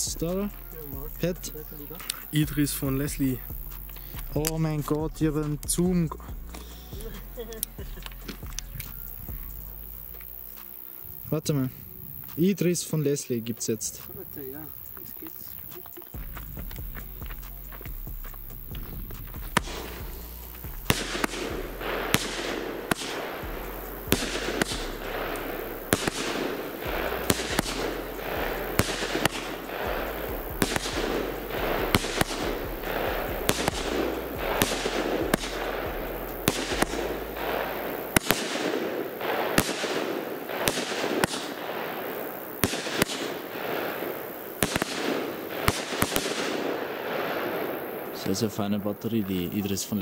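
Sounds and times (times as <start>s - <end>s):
firework bangs with crackling: 0.0s - 50.0s.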